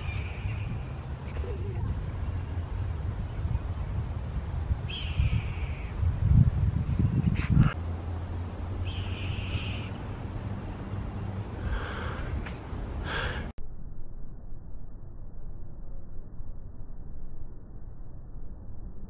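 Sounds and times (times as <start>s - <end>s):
wind rumble on microphone: 0.0s - 13.2s.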